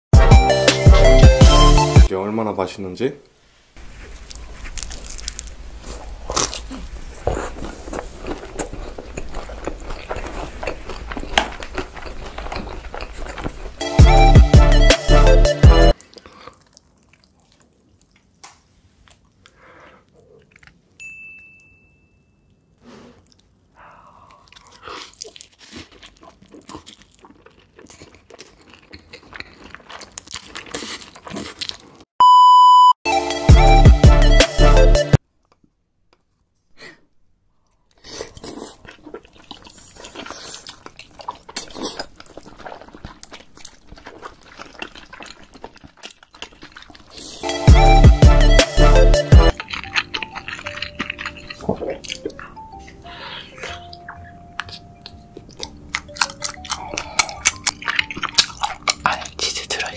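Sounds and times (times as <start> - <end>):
music with heavy bass beat: 0.2 - 2.1, 13.8 - 15.9, 33.2 - 35.2, 47.4 - 49.5
man chewing crunchy food: 3.8 - 21.0, 22.9 - 32.1, 37.6 - 59.9
loud steady beep: 32.2 - 33.0.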